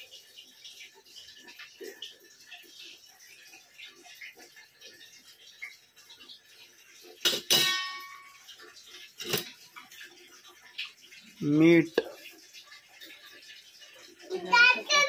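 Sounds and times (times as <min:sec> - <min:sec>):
metal utensils clinking: 0:07.2 - 0:09.7.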